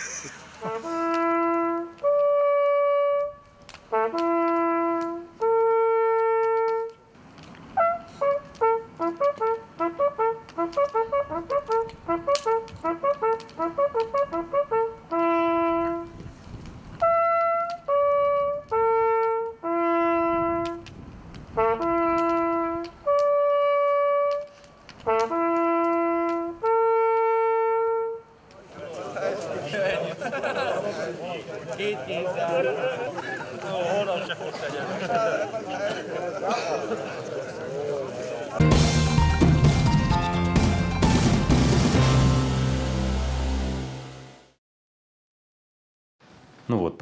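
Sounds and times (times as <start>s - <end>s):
hunting horn signals: 0.6s - 6.9s, 7.8s - 16.2s, 17.0s - 20.8s, 21.6s - 24.5s, 25.1s - 28.3s.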